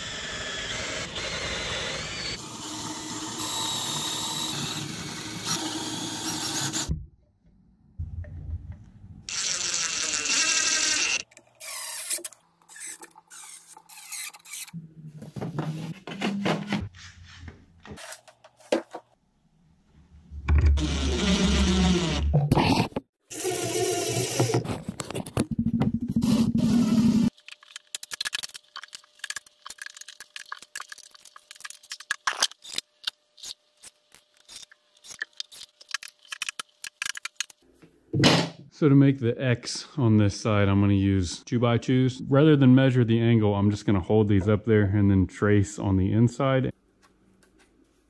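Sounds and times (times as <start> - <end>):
cordless drill running: 0.0 - 6.9, 9.3 - 11.8.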